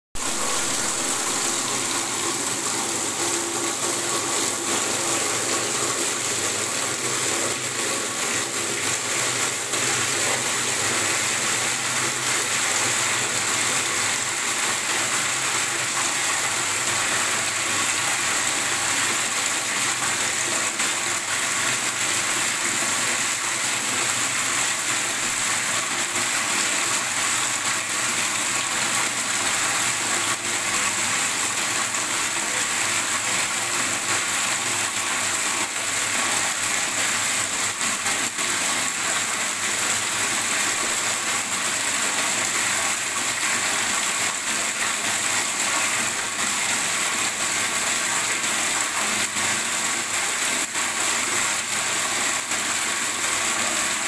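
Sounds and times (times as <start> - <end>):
tap water splashing into tub: 0.2 - 54.0.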